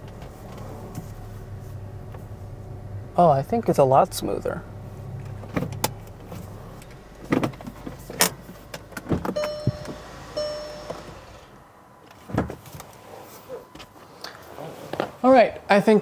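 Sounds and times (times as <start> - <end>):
car engine idling: 0.0 - 12.0
clicks and knocks from car: 7.2 - 10.0
short chime tones: 9.4 - 11.3.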